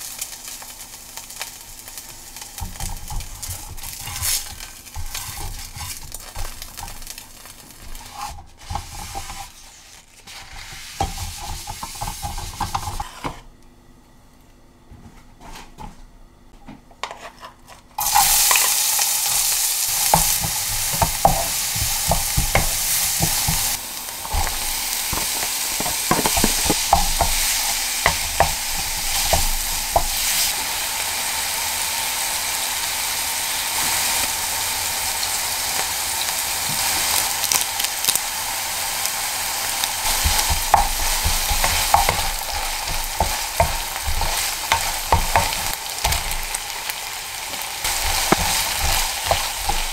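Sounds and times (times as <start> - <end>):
meat sizzling in a frying pan: 0.0 - 13.0, 18.0 - 49.9
spatula scraping a pan: 2.9 - 13.5, 17.0 - 30.6, 40.0 - 46.7, 47.8 - 49.9.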